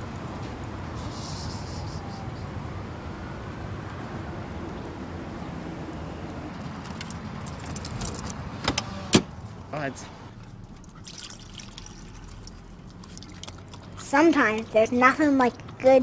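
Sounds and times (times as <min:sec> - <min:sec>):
keys jangling against lock: 0:06.8 - 0:08.4.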